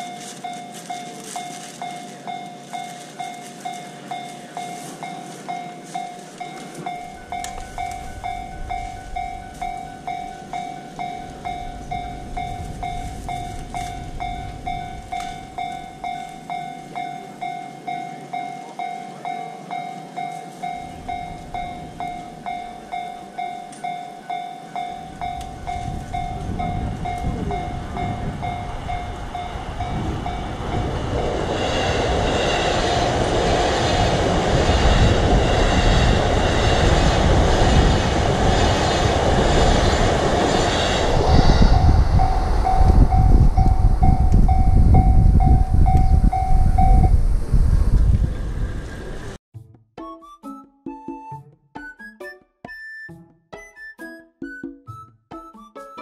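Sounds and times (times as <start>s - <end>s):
level crossing bell dinging: 0.0s - 30.6s, 42.2s - 47.2s
train rumbling past: 0.0s - 49.4s.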